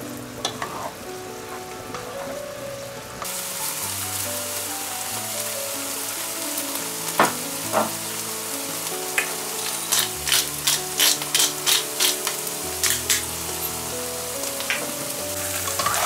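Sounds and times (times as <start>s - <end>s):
mushrooms sizzling in a pan: 0.0s - 16.0s
pepper grinder crunching: 9.9s - 13.3s.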